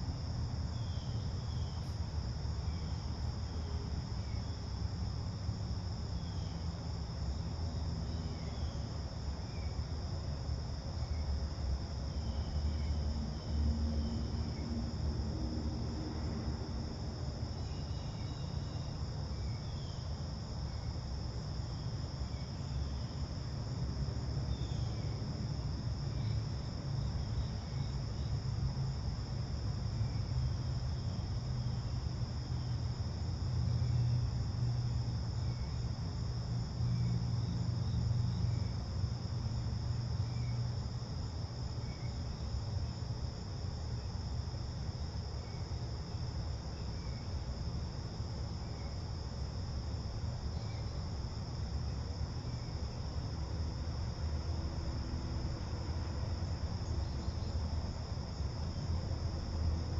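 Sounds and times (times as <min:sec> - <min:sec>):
insect chorus drone: 0:00.0 - 0:59.9.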